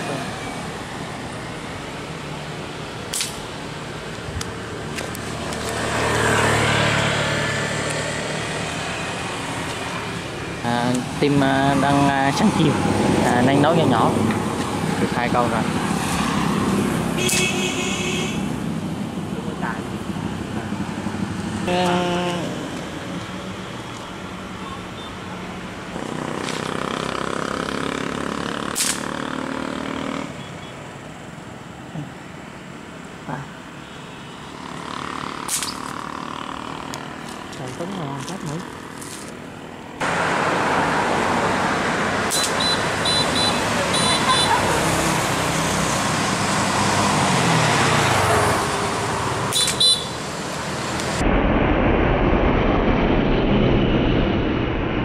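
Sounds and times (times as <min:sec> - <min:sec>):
motor vehicle passing: 0:00.0 - 0:30.5, 0:34.4 - 0:51.2
steady traffic background: 0:00.0 - 0:55.0
sharp click: 0:03.1 - 0:03.4, 0:28.7 - 0:29.0, 0:42.3 - 0:42.6, 0:49.5 - 0:49.8.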